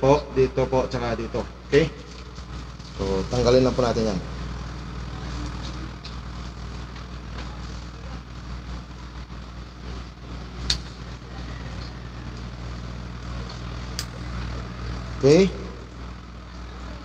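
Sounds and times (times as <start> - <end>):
low mechanical hum: 0.0 - 17.0
sharp metallic click: 10.6 - 10.9, 14.0 - 14.3.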